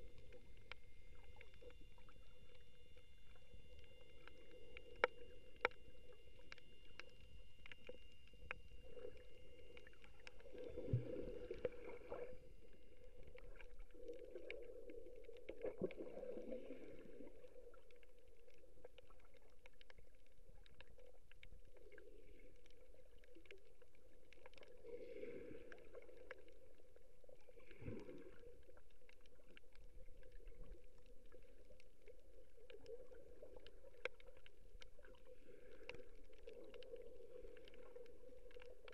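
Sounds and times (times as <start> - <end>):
faint clicks: 0.1 - 14.6
underwater water surge: 7.0 - 17.4.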